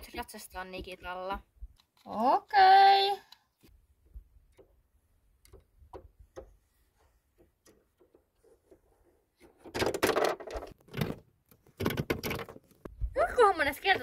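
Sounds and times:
toy set rustling clatter: 0:09.4 - 0:11.0.

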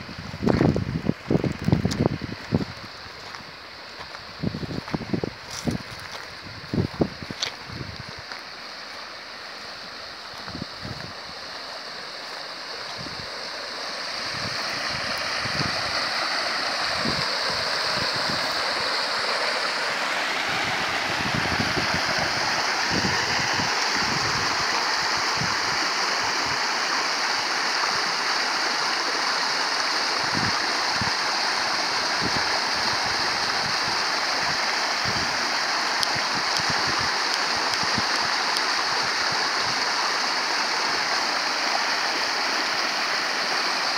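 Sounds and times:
water pouring into a stream: 0:11.3 - 0:43.9.

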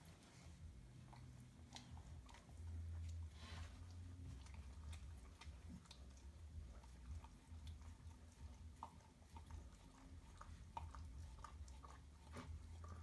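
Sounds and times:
puppies suckling: 0:00.0 - 0:13.0.

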